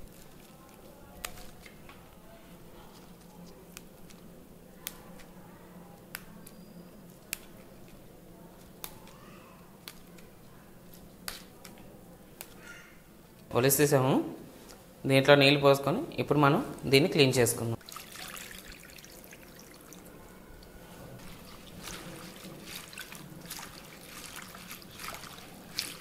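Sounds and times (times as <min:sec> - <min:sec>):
leaves snapping off stalks: 0:00.1 - 0:01.8, 0:08.6 - 0:09.2, 0:10.9 - 0:11.8.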